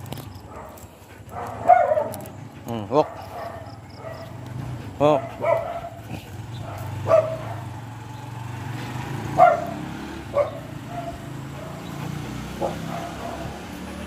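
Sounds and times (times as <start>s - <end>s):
dog yipping: 1.4s - 2.2s, 6.6s - 7.7s, 9.4s - 9.8s, 10.4s - 11.9s.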